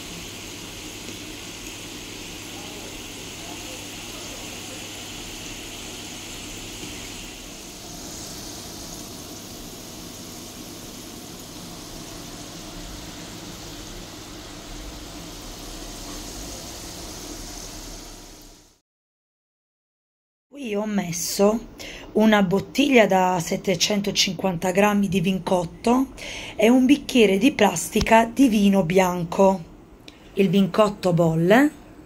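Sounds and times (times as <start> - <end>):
pastries sizzling in hot oil: 0.0 - 18.8.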